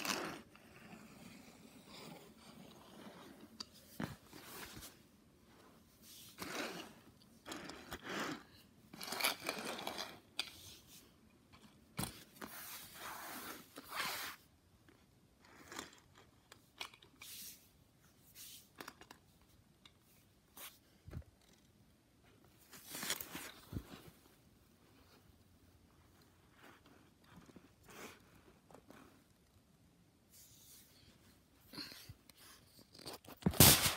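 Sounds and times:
toy cars scraping on mat: 0:00.0 - 0:03.6, 0:06.0 - 0:11.0, 0:12.4 - 0:14.4.

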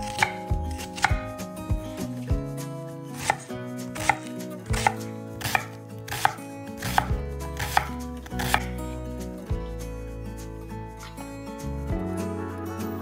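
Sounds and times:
knife chopping on cutting board: 0:00.0 - 0:01.5, 0:03.2 - 0:08.7.

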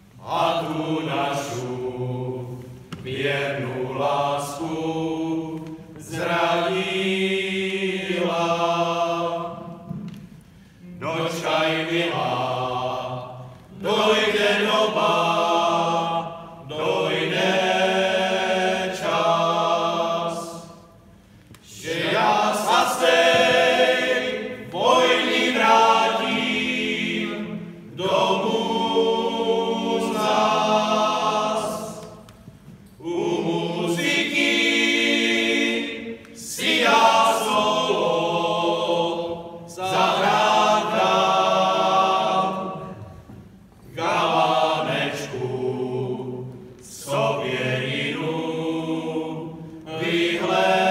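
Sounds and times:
male choir singing a cappella: 0:00.2 - 0:10.0, 0:10.9 - 0:21.0, 0:21.6 - 0:32.3, 0:33.0 - 0:50.9.

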